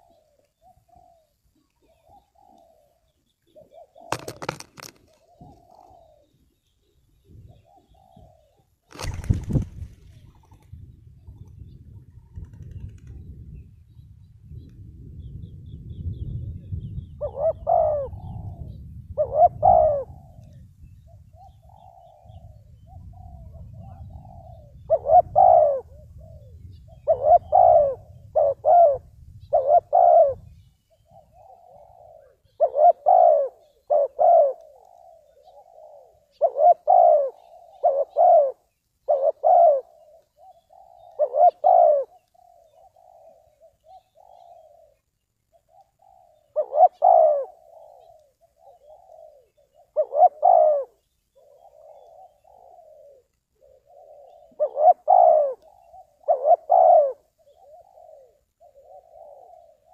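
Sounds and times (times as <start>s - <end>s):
dove cooing: 0.0s - 13.5s, 14.5s - 59.9s.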